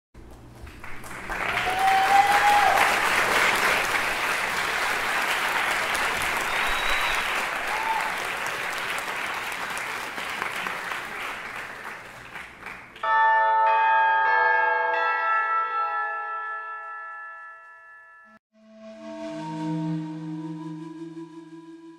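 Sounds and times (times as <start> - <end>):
audience applause: 0.3 - 13.0
short whistles: 6.4 - 7.4
music: 17.6 - 21.9.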